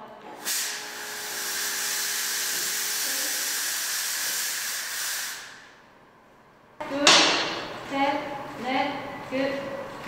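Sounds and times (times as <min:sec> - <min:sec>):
fog machine hissing: 0:00.4 - 0:05.7.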